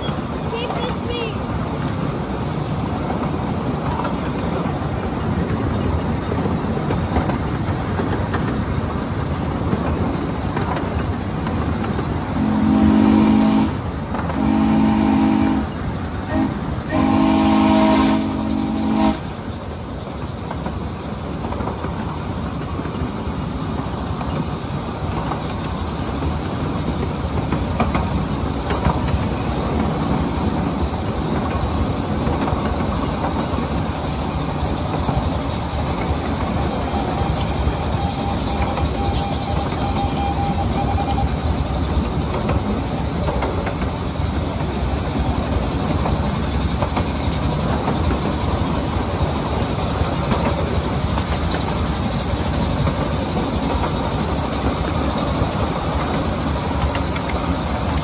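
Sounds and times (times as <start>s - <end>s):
wheels rumbling on track: 0.0s - 58.0s
chime steam whistle blasts: 36.8s - 41.5s.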